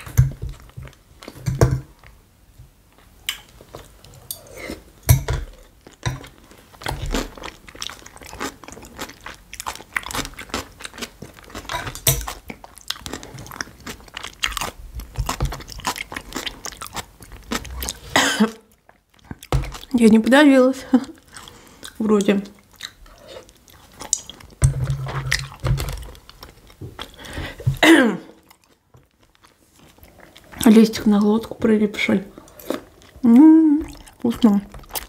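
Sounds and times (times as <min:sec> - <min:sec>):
crunchy chewing: 0:05.8 - 0:18.1, 0:21.0 - 0:27.6, 0:28.4 - 0:31.3.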